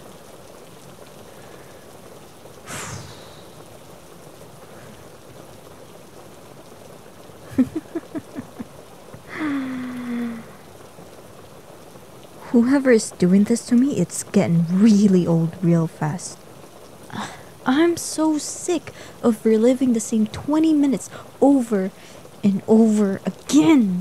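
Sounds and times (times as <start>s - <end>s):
steady rain: 0.0s - 24.0s
woman breathing: 2.7s - 3.6s, 9.2s - 10.7s, 18.9s - 19.2s
woman groaning: 9.3s - 10.5s.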